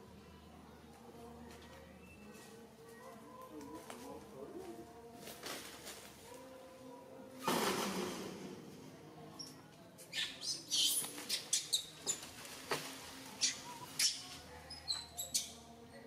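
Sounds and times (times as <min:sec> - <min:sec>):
baby monkey squeaking: 0:10.1 - 0:12.3, 0:13.4 - 0:15.6.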